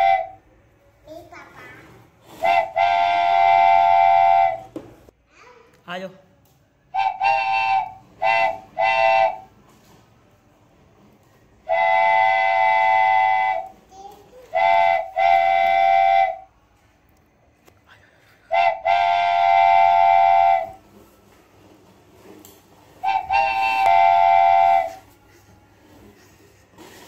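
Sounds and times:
train horn blasts: 0.0s - 0.5s, 2.4s - 4.7s, 6.9s - 9.5s, 11.6s - 13.7s, 14.5s - 16.5s, 18.5s - 20.9s, 23.0s - 25.1s.

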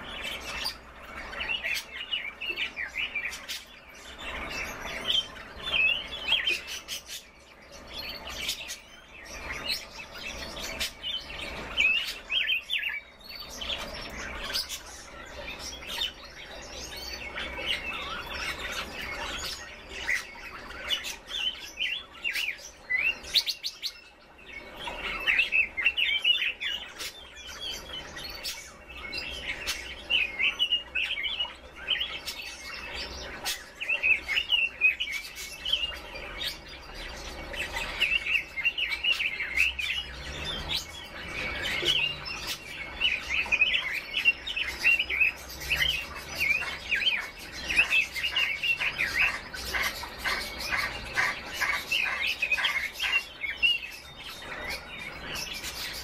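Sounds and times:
birds chirping and calling: 0.0s - 56.0s.

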